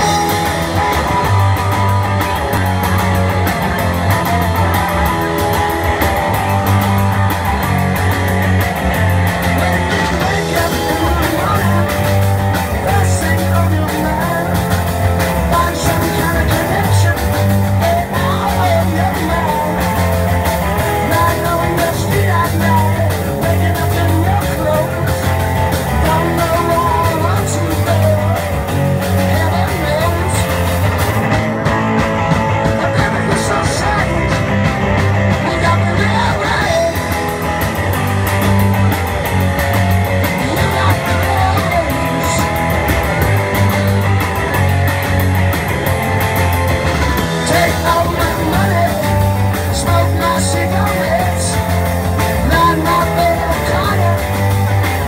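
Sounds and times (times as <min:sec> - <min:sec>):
person singing: 0:00.0 - 0:02.4, 0:09.4 - 0:30.9, 0:32.6 - 0:37.5, 0:40.2 - 0:43.8, 0:47.2 - 0:55.0
bass: 0:00.0 - 0:55.0
drums: 0:00.0 - 0:55.0
electric guitars: 0:00.0 - 0:55.0
keyboard: 0:00.0 - 0:55.0.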